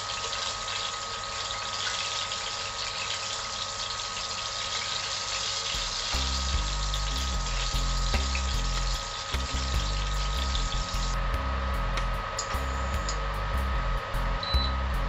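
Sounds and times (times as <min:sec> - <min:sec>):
fish sizzling in hot oil: 0:00.0 - 0:11.2
music with low bass beat: 0:05.8 - 0:15.0.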